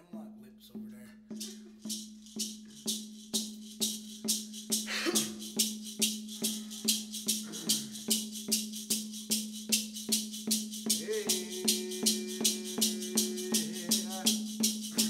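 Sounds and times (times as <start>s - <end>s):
hand rattle shaken: 1.3s - 15.0s
low drone: 11.0s - 15.0s.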